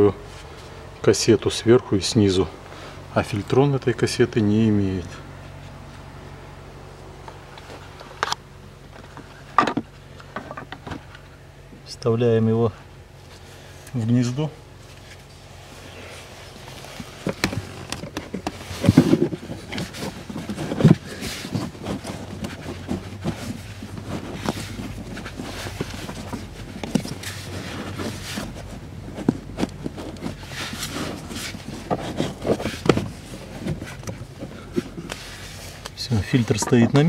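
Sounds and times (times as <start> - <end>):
plastic filter scraping: 15.8 - 37.0.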